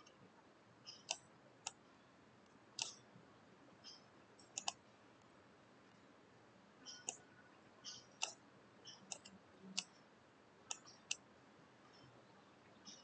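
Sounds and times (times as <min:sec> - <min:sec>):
computer mouse clicks: 0:02.8 - 0:03.0, 0:03.9 - 0:04.8, 0:07.9 - 0:10.0, 0:10.7 - 0:11.2.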